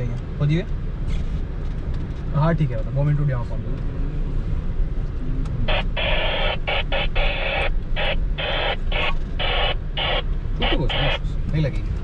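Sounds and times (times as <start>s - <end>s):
radio static hissing: 5.6s - 11.3s.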